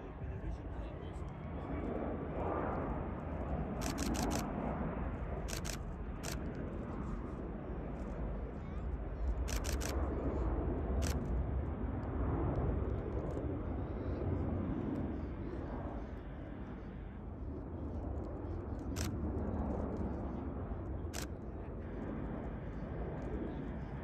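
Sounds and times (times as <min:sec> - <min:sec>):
jet engines rumbling: 0:00.0 - 0:24.0
rapid sharp clicks: 0:03.8 - 0:04.5, 0:05.5 - 0:06.4, 0:09.5 - 0:10.0.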